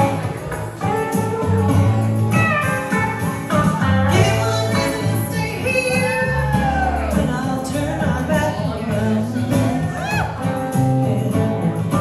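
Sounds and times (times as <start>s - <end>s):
acoustic guitar: 0.0s - 12.0s
drums: 0.0s - 12.0s
electric guitar: 0.0s - 12.0s
woman singing: 3.6s - 12.0s.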